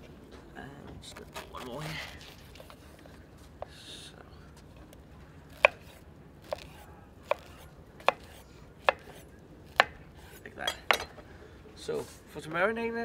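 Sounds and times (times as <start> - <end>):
knife chopping on wooden board: 5.5 - 11.1.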